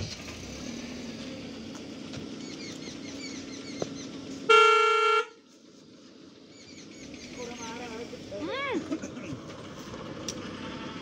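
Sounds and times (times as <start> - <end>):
birds chirping: 1.3 - 8.3
vehicle horn blast: 4.5 - 5.4.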